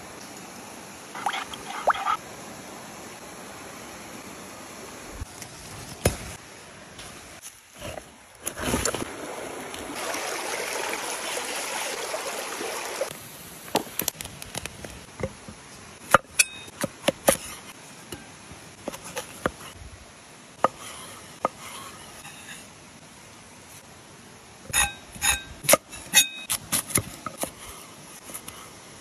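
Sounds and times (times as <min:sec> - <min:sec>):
running water hissing: 0:00.0 - 0:06.4, 0:07.1 - 0:14.0.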